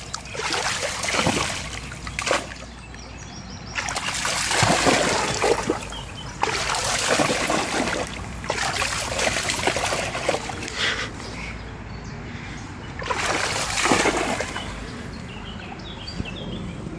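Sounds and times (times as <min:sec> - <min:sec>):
dog splashing in water: 0:00.0 - 0:02.8, 0:03.7 - 0:10.7, 0:13.0 - 0:14.9
trickling stream water: 0:00.0 - 0:16.9.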